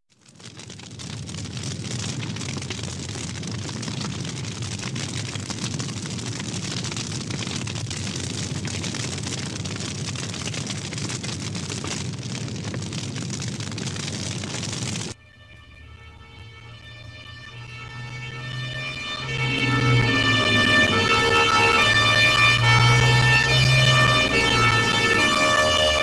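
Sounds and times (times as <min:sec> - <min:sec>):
fire burning: 0:00.1 - 0:26.0
steady musical tones: 0:15.3 - 0:26.0.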